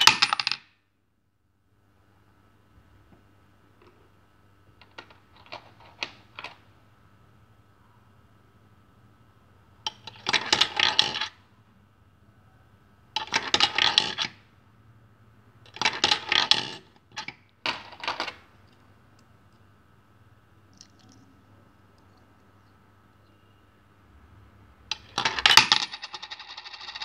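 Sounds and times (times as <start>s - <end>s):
coins clattering through coin acceptor: 0.0s - 0.7s, 9.9s - 11.4s, 13.2s - 14.4s, 15.7s - 18.4s, 24.9s - 27.0s.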